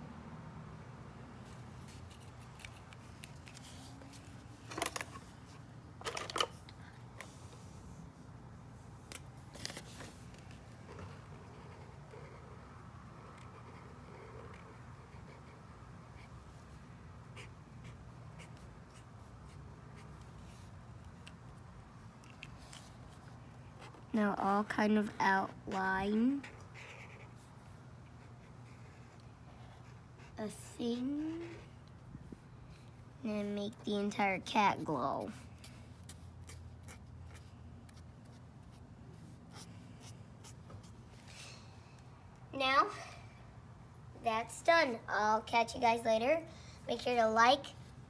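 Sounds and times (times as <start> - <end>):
marker scratching on paper: 10.8 - 16.4, 17.2 - 21.4, 25.4 - 31.8, 33.8 - 41.0.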